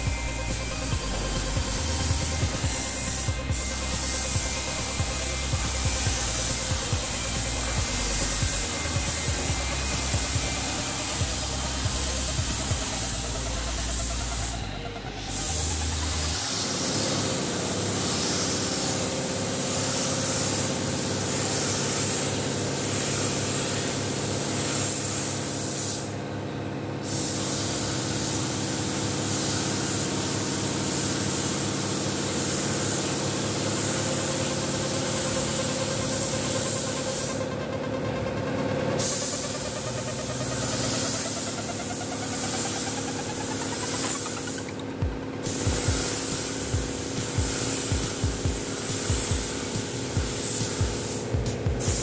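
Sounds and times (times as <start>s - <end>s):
machine hum: 0.0s - 18.1s, 37.6s - 52.0s
spray gun hissing: 0.0s - 26.2s, 27.0s - 37.4s, 39.0s - 52.0s.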